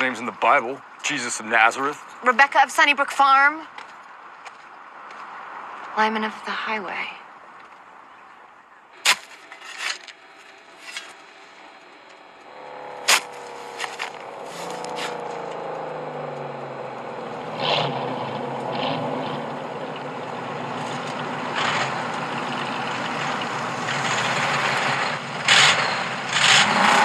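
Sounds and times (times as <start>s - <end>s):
metal clanks and scrapes: 9.1s - 11.2s
car engine approaching: 10.2s - 27.0s.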